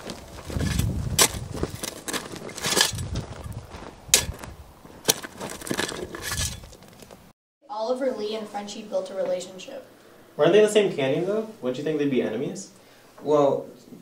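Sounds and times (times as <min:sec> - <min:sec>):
shovel scraping gravelly soil: 0:00.0 - 0:07.2
shovel clinking on stones: 0:00.4 - 0:03.1, 0:04.1 - 0:07.0.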